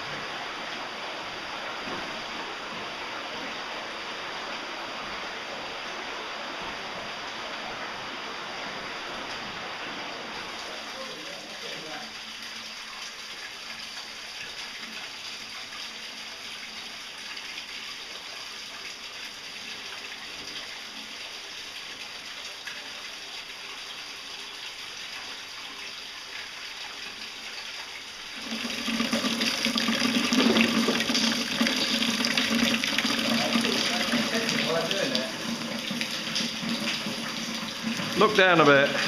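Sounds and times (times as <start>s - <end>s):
cave stream flowing: 0.0s - 39.0s
water splashing into plastic container: 28.4s - 39.0s.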